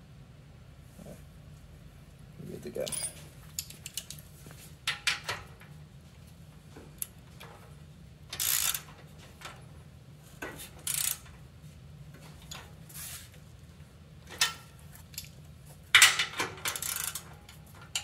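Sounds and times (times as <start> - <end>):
metal tools clinking: 2.8 - 4.2
ratchet wrench clicking: 8.3 - 8.9, 10.8 - 11.2, 16.0 - 17.2.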